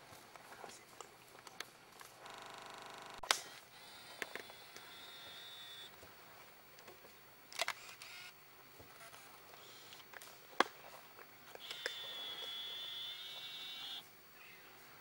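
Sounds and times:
camera motor whine: 2.2 - 5.9, 7.6 - 10.0, 11.6 - 14.0
camera mechanism clicks: 11.6 - 12.1.

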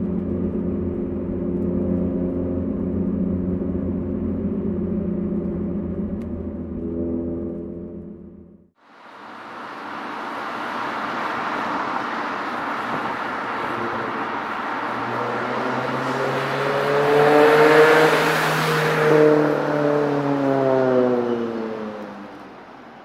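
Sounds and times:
car engine accelerating: 0.0 - 23.0
rushing noise: 8.8 - 19.8.

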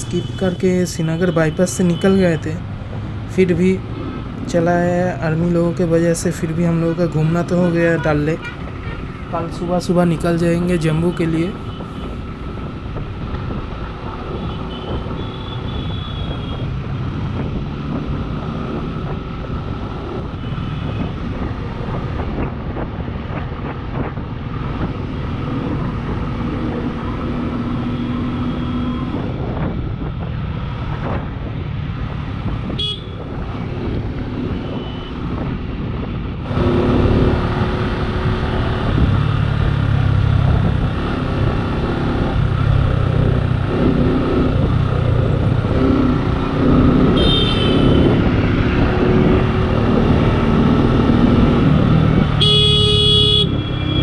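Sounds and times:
vehicles passing: 0.0 - 54.0
car horn toots: 32.8 - 33.2, 47.2 - 48.1, 52.4 - 54.0.

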